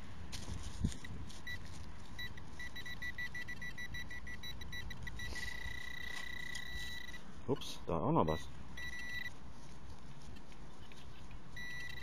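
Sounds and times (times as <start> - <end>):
metal detector pinpointer beeping: 0.9 - 9.4, 11.0 - 12.0.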